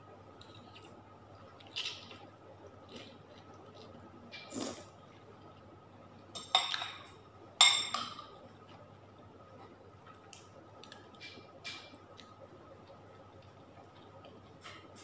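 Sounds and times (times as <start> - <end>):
eating sound: 0.4 - 5.7
cutlery clinking on a plate: 6.4 - 8.3.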